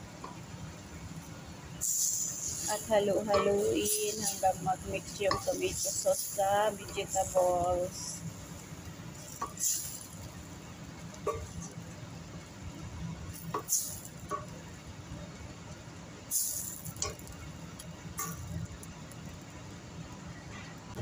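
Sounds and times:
spoon knocking and scraping pan: 5.1s - 5.8s.

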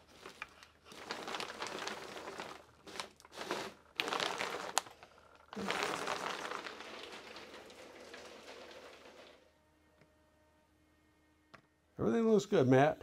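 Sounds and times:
plastic sheeting crinkling: 0.0s - 9.6s.

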